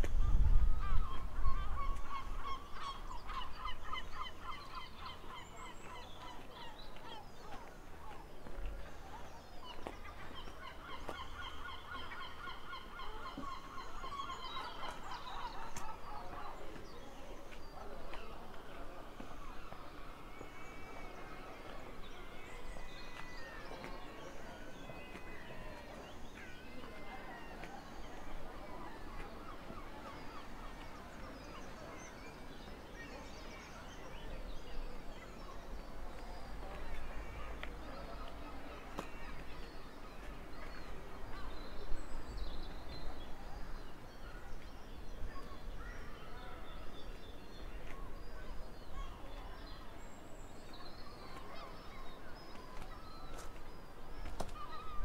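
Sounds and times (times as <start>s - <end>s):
birds calling: 0.0s - 7.7s, 50.6s - 55.0s
outdoor background noise: 0.0s - 55.0s
birds chirping: 0.2s - 55.0s.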